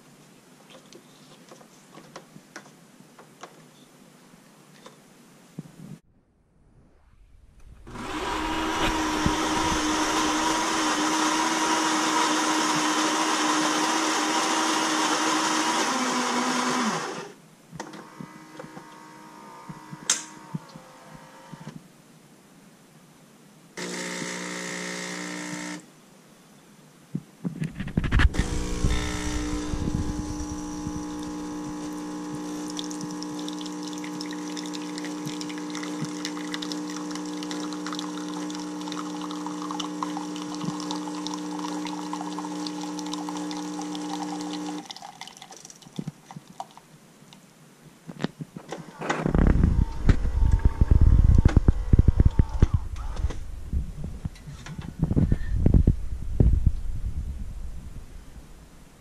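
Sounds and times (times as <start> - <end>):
pump buzzing: 7.6 - 17.4, 23.8 - 25.8, 28.0 - 44.9, 48.8 - 53.5
pump humming: 7.6 - 17.4, 28.3 - 45.2
coffee grinder running: 7.9 - 17.4, 23.8 - 25.8, 28.0 - 45.1.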